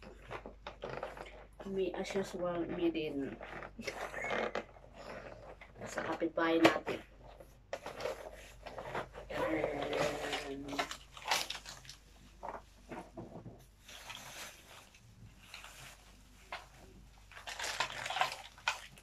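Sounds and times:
plastic wrapping crinkling: 0:00.0 - 0:19.0
cardboard rustling: 0:07.3 - 0:19.0
small irregular knocks: 0:12.4 - 0:13.7.

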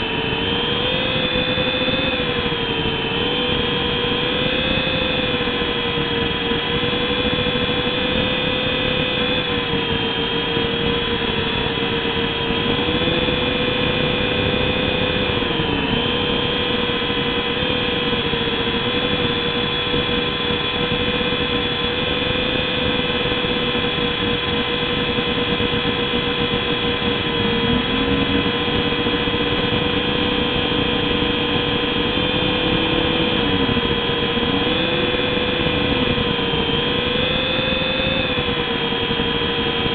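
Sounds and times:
rc helicopter motor whine: 0:00.0 - 0:39.9.

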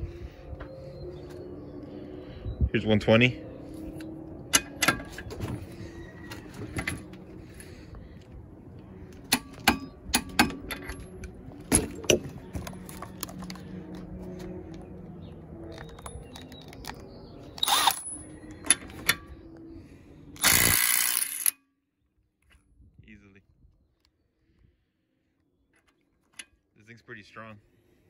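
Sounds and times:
metal tools clicking and clanking: 0:04.4 - 0:05.6, 0:09.2 - 0:13.6
impact driver hammering: 0:09.3 - 0:10.7.

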